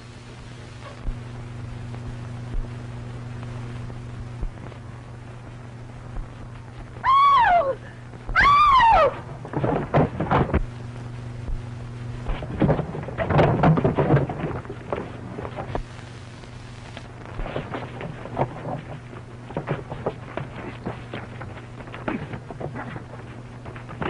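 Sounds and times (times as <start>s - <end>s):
woman screaming: 7.0s - 9.2s
thumps and scuffling: 8.3s - 10.8s, 11.4s - 16.0s, 17.2s - 24.0s.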